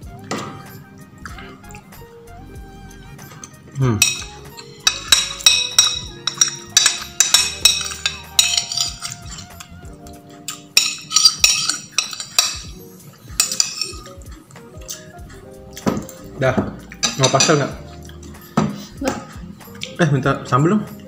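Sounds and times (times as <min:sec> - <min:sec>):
metal spoon clinking on a plate: 0:03.4 - 0:09.8, 0:10.4 - 0:14.2, 0:17.0 - 0:17.7.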